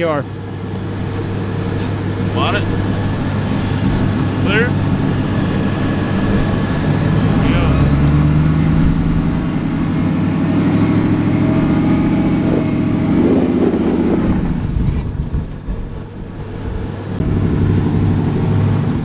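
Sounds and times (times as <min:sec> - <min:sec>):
truck engine revving under load: 0:00.0 - 0:19.0.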